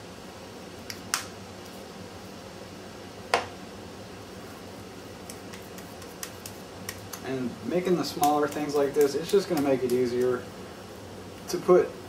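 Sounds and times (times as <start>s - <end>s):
low room hum: 0.0s - 12.0s
hands working minced fish: 5.2s - 10.4s.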